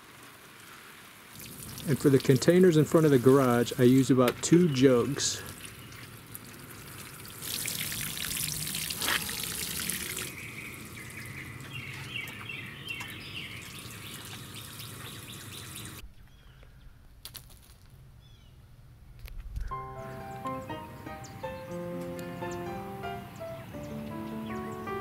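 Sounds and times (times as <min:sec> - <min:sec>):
water pouring onto plants: 0:00.0 - 0:12.5, 0:13.1 - 0:16.0.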